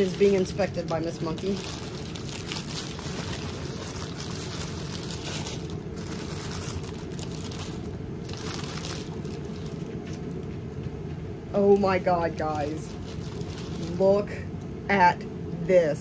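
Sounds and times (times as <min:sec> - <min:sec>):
tissue paper crinkling: 0:00.0 - 0:10.4, 0:12.4 - 0:14.0
low background rumble: 0:00.0 - 0:16.0.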